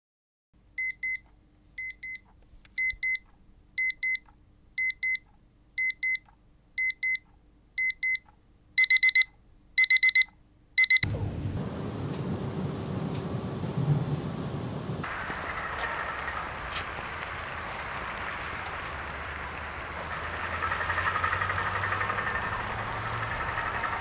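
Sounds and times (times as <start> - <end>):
faint steady hum: 0.6 - 19.6
alarm clock beeping: 0.8 - 1.2, 1.8 - 2.2, 2.8 - 3.2, 3.8 - 4.2, 4.8 - 5.2, 5.8 - 6.2, 6.8 - 7.2, 7.8 - 8.2, 8.8 - 11.1.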